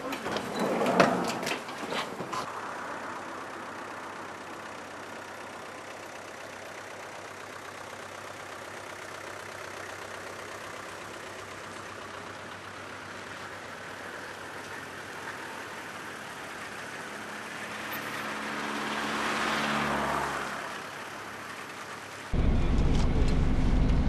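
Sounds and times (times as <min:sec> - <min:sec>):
vehicle engines running: 0:00.0 - 0:24.0.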